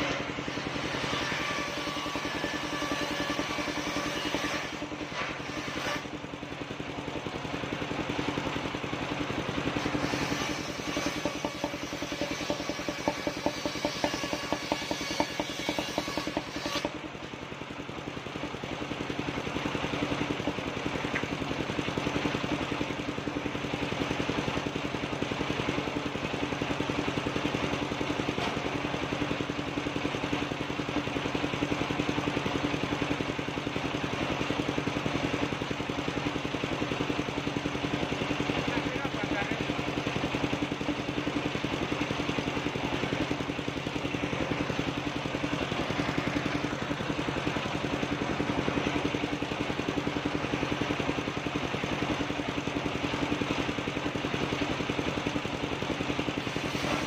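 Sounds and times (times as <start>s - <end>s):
blade cutting wood with ticking: 0.0s - 6.1s, 9.8s - 17.0s
sawmill engine and blade running: 0.0s - 57.0s.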